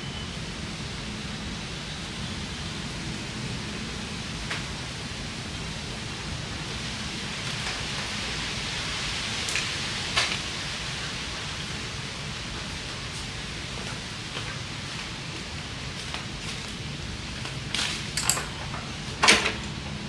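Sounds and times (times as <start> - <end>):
steady hiss: 0.0 - 20.0.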